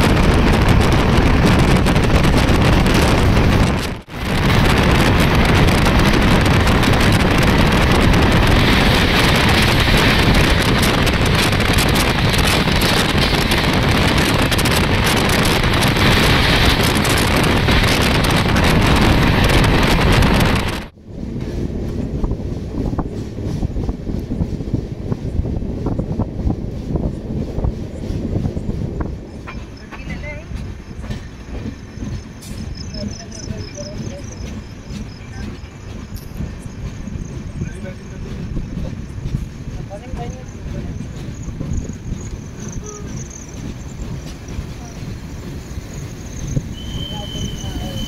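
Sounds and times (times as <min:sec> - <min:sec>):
train rolling on track: 0:00.0 - 0:48.0
wind rushing over microphone: 0:00.0 - 0:48.0
wheels clacking over rail joints: 0:29.0 - 0:48.0.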